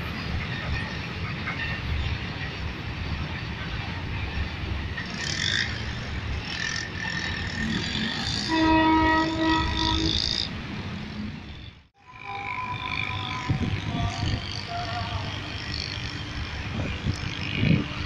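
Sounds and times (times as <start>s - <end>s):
freight train rumbling: 0.0s - 18.0s
multi-tone train horn: 8.2s - 10.4s, 12.0s - 15.8s.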